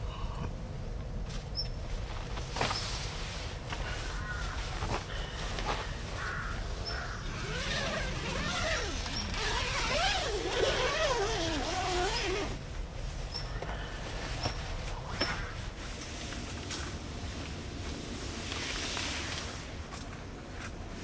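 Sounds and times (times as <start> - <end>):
camping gear squeaking and creaking: 1.4 - 15.9.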